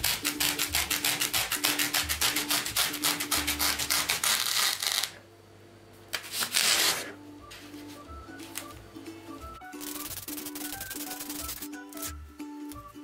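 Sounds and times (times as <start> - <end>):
knife sawing through foam: 0.0 - 5.1.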